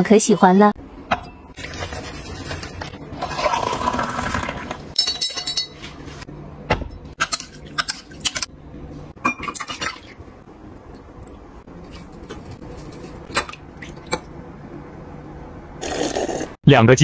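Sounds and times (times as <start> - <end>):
metal spoon clinking against glass: 5.0 - 5.8.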